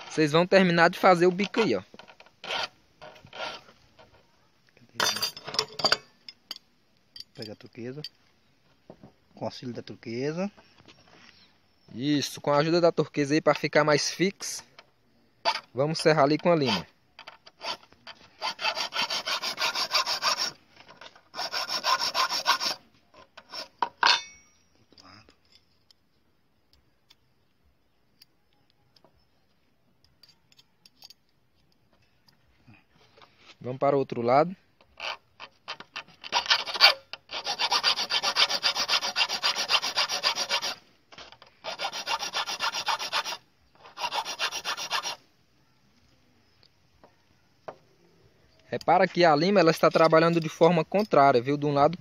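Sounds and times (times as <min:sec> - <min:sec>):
hand file rasping on steel: 0:02.4 - 0:03.7, 0:16.4 - 0:16.9, 0:17.5 - 0:20.6, 0:21.3 - 0:22.8, 0:23.4 - 0:24.3, 0:35.0 - 0:45.2.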